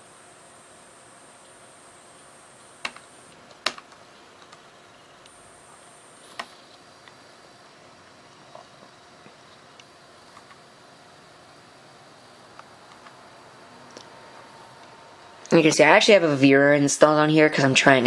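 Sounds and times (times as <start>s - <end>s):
faint hiss: 0.0s - 3.4s, 4.0s - 18.0s
laptop controls clicking: 2.6s - 3.9s.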